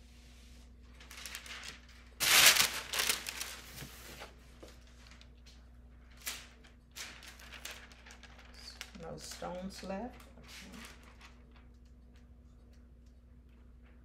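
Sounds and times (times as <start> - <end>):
plastic tape crinkling: 0.9 - 12.0.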